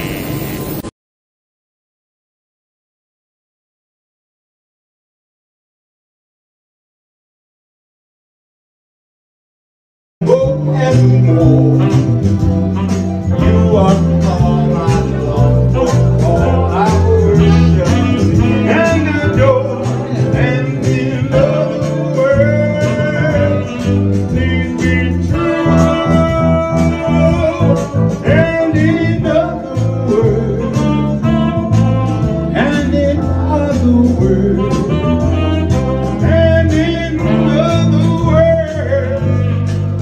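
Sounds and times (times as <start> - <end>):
lead singer singing: 10.2 - 12.4, 13.2 - 39.6
live band playing: 10.2 - 40.0.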